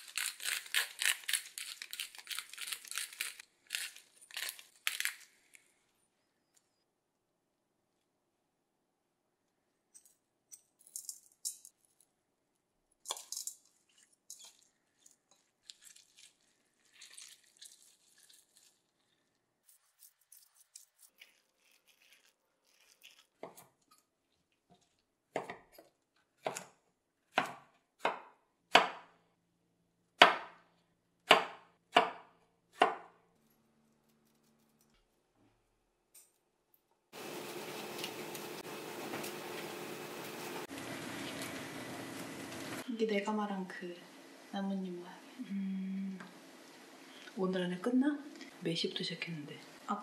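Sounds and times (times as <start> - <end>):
spoon clicking and scraping bowl: 13.1 - 16.1
knife chopping on wooden board: 31.3 - 33.1.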